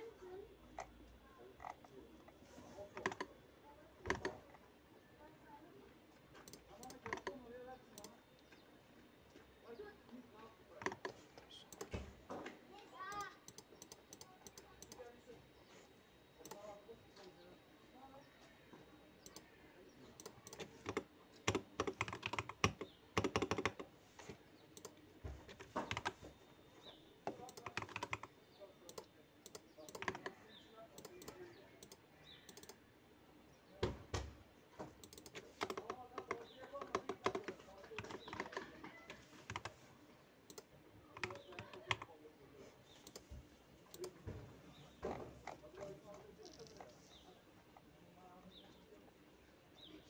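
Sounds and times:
computer keyboard typing: 0:02.9 - 0:03.4, 0:04.0 - 0:04.6, 0:06.4 - 0:07.4, 0:10.8 - 0:12.0, 0:13.0 - 0:15.1, 0:20.2 - 0:23.9, 0:24.7 - 0:26.2, 0:27.2 - 0:30.4, 0:31.0 - 0:32.8, 0:35.0 - 0:39.8, 0:40.5 - 0:42.1, 0:43.0 - 0:43.3, 0:43.9 - 0:44.2.

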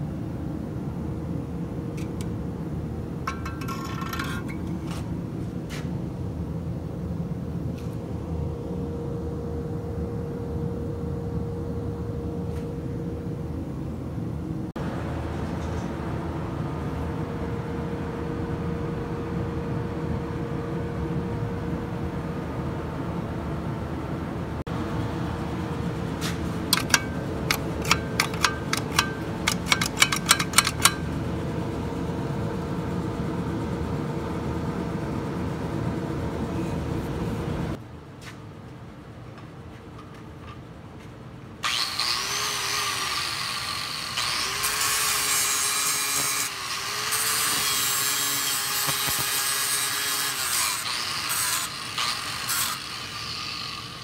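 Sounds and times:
machine hum: 0:00.0 - 0:38.0
angle grinder cutting steel: 0:03.3 - 0:04.8, 0:26.7 - 0:31.1, 0:41.6 - 0:54.0.

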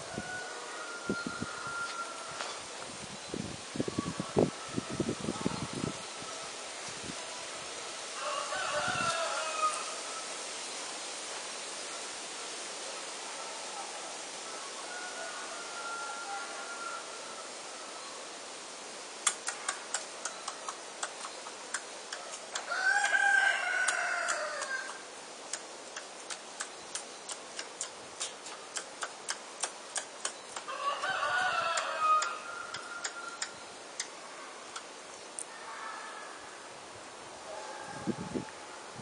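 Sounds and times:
rooster crowing: 0:00.0 - 0:02.6, 0:08.2 - 0:10.3, 0:14.4 - 0:17.6, 0:22.6 - 0:25.0, 0:30.7 - 0:33.5
sharp regular clicks: 0:19.2 - 0:23.2, 0:25.5 - 0:30.7.

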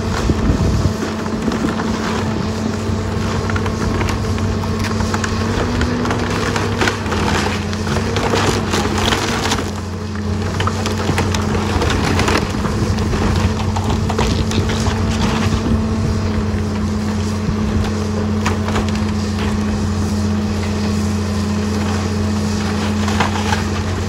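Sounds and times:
excavator diesel engine running: 0:00.0 - 0:24.0
wood cracking and crunching: 0:00.0 - 0:24.0.

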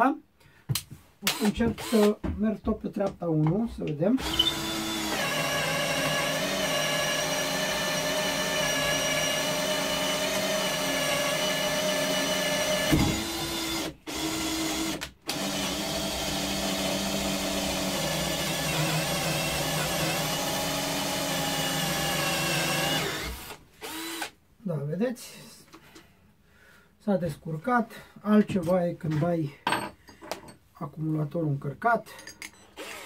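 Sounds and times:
cordless drill whining: 0:01.2 - 0:02.1, 0:04.2 - 0:24.4, 0:32.8 - 0:33.0.

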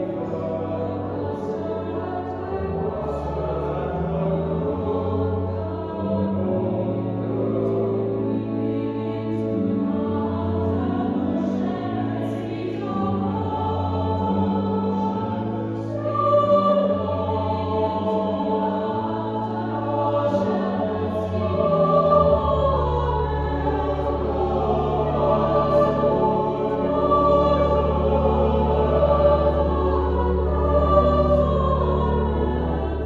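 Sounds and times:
mixed choir singing: 0:00.0 - 0:33.0
pipe organ bass notes: 0:00.0 - 0:33.0.

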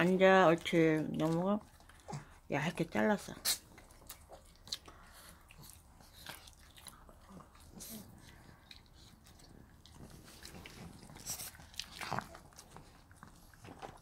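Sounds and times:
dog chewing treat: 0:03.3 - 0:14.0.

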